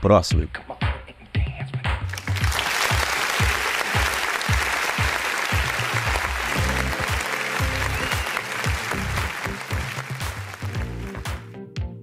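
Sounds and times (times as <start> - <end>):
applause: 2.1 - 11.5.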